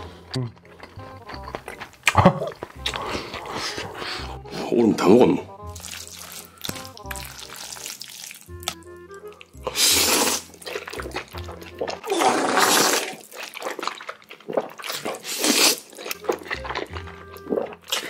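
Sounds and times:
background music with bass line: 0.0s - 12.1s
wet chewing: 0.6s - 4.5s, 5.7s - 18.0s
noodle slurping: 9.4s - 18.0s.

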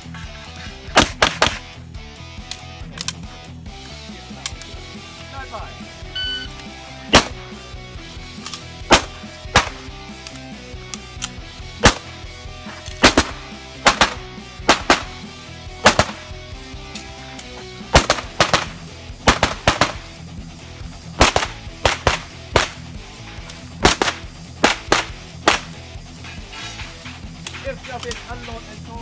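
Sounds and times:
faint background music: 0.0s - 29.0s
pistol shots: 0.9s - 1.8s, 7.1s - 7.6s, 8.4s - 20.2s, 21.2s - 25.8s.

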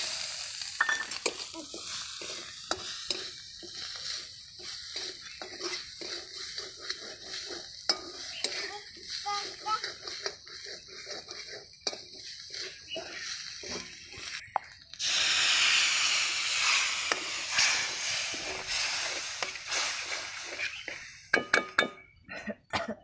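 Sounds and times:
water sizzling in hot pan: 0.0s - 21.5s
spatula scraping a pan: 1.2s - 14.4s, 16.5s - 21.2s
spatula clinking on metal pan: 7.8s - 8.7s.

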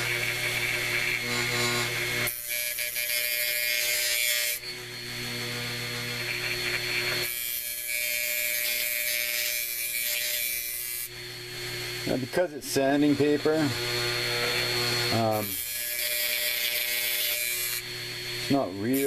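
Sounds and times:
hard drive and power supply hum: 4.6s - 7.3s
wire wheel rasping on sandpaper: 5.9s - 11.1s.

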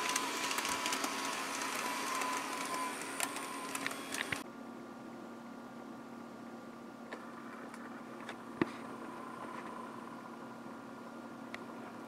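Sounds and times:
toy train clicks: 0.0s - 4.4s
toy train motor whining: 0.0s - 4.4s.

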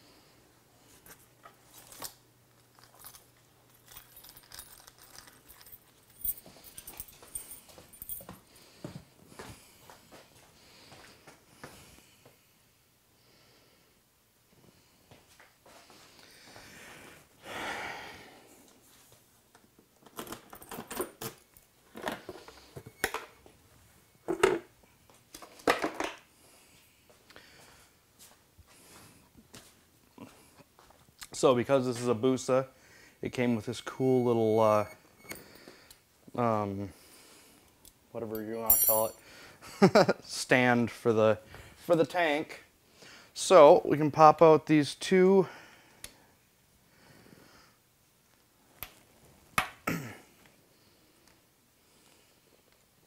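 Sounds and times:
small parts being handled: 1.7s - 8.3s
metal tools clinking: 2.6s - 8.4s, 33.7s - 35.4s, 38.3s - 39.2s.

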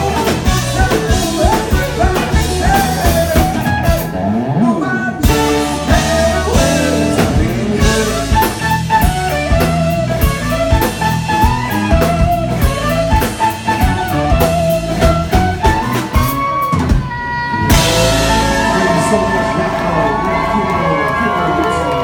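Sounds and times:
drum kit: 0.0s - 4.3s, 5.2s - 22.0s
bass guitar: 0.0s - 22.0s
electric guitar melody: 0.0s - 22.0s.

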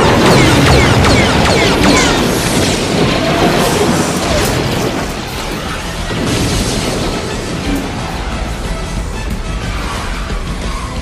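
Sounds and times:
explosions booming and crackling: 0.0s - 10.5s
music: 4.0s - 11.0s.

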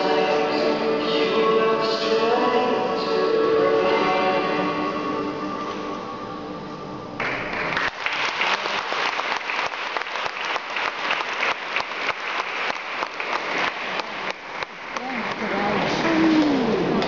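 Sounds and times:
recorded music: 0.0s - 7.7s
audience clapping: 7.2s - 17.0s.

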